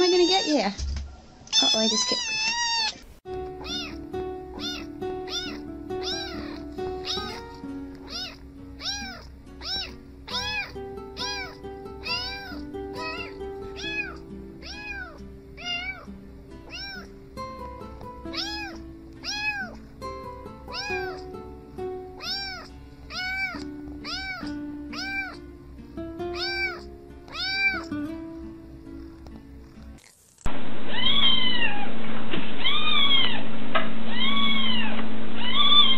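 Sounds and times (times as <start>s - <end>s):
kitten meowing: 1.5s - 3.0s, 3.6s - 16.1s, 16.7s - 17.1s, 18.3s - 19.8s, 20.7s - 21.3s, 22.2s - 25.4s, 26.3s - 27.9s, 30.9s - 31.8s, 32.6s - 33.4s, 34.1s - 35.9s
soft background music: 3.3s - 30.1s.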